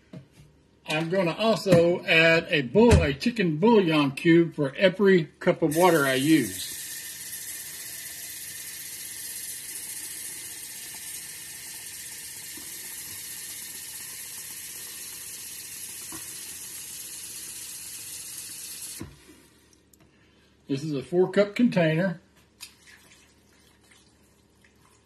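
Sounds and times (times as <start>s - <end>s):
tap water running: 5.7s - 19.8s.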